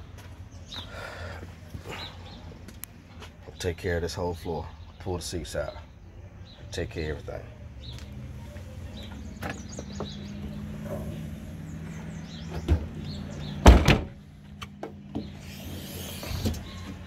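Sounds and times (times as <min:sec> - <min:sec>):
car liftgate slamming: 0:13.6 - 0:14.2.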